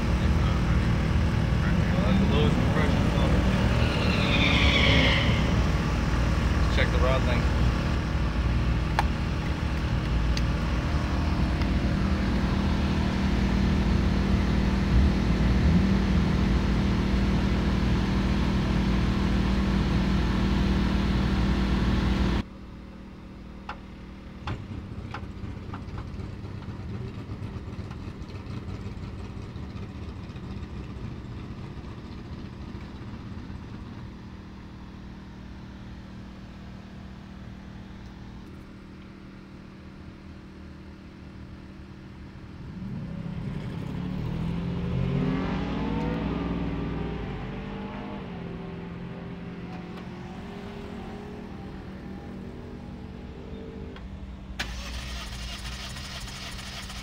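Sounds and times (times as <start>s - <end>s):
engine idling: 0.0s - 42.7s, 54.0s - 57.0s.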